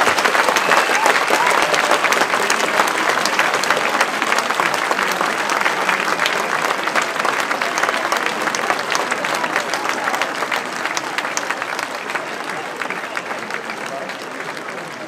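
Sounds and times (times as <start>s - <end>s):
large crowd applauding: 0.0s - 15.0s.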